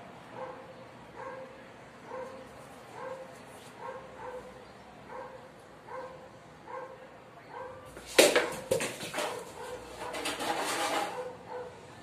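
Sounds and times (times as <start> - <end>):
dog barking: 0.3 - 2.4, 3.0 - 7.9, 9.2 - 10.2, 11.1 - 11.8
blade striking coconut: 8.0 - 9.4.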